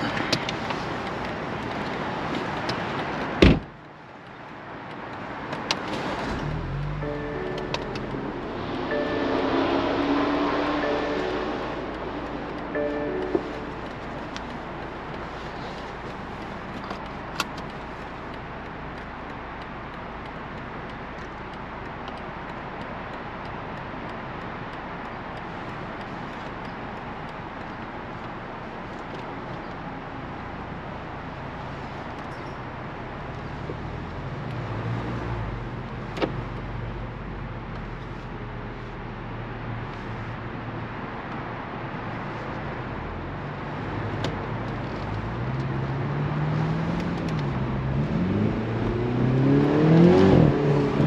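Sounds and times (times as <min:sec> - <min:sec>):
car engine and tyre noise: 0:00.0 - 0:51.0
low humming tone: 0:06.8 - 0:15.0.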